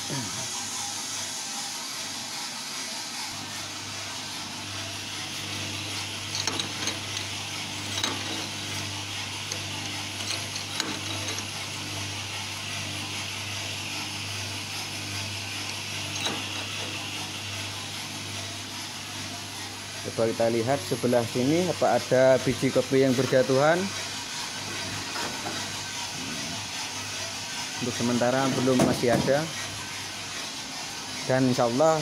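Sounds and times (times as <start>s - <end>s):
motor humming: 3.4s - 31.8s
metallic clicks and rattles: 6.2s - 8.8s, 9.5s - 11.6s, 16.1s - 16.8s.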